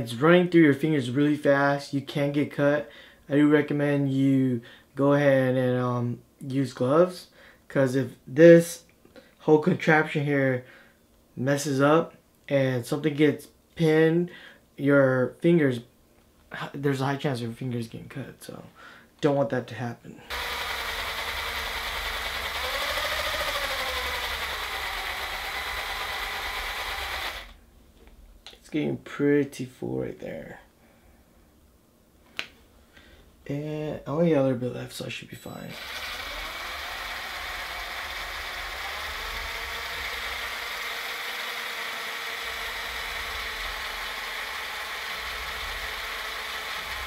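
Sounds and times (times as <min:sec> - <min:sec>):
cordless drill running: 0:20.3 - 0:27.6, 0:35.7 - 0:47.0
fishing line winding onto spool: 0:20.3 - 0:27.6, 0:35.7 - 0:47.0.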